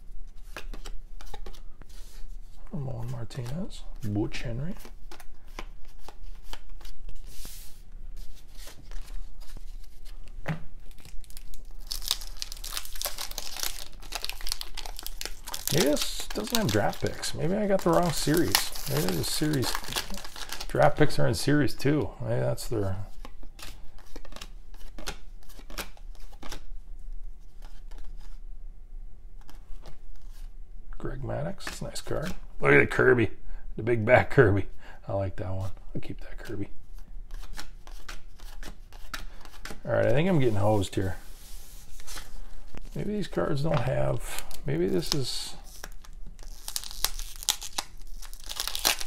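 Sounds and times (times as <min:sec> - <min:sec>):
cards being flipped: 0:00.3 - 0:02.2, 0:03.3 - 0:21.2, 0:23.2 - 0:26.7, 0:27.5 - 0:28.4, 0:36.9 - 0:49.0
cards clicking being flipped: 0:00.5 - 0:01.6, 0:23.2 - 0:26.6
wrapper crinkling and tearing: 0:10.8 - 0:21.7, 0:42.0 - 0:49.0.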